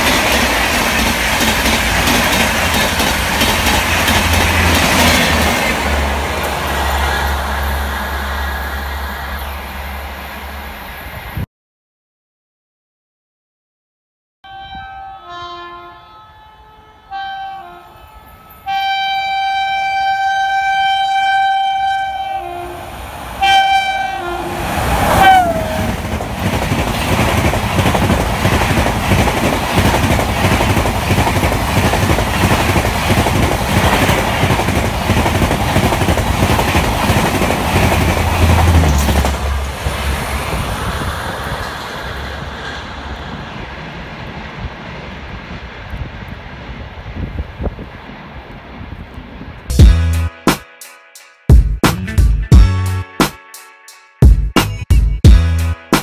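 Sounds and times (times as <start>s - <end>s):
train rumble and wheel clatter: 0.0s - 11.4s, 17.1s - 50.0s
locomotive horn blasts: 14.4s - 26.0s.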